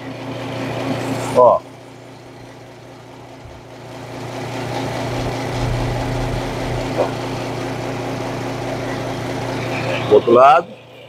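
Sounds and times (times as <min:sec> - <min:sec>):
belt sander motor hum: 0:02.0 - 0:10.2.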